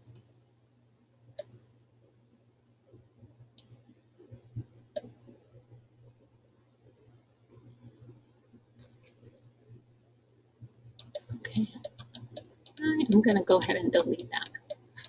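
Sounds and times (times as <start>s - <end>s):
faint low hum: 0.0s - 15.0s
computer mouse clicks: 4.9s - 5.2s, 8.7s - 9.3s, 11.0s - 14.9s.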